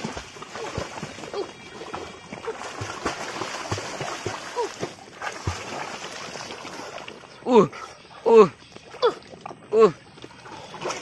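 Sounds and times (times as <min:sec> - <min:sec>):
short water plops: 0:00.0 - 0:07.4
water splashing around swimmer: 0:00.0 - 0:11.0.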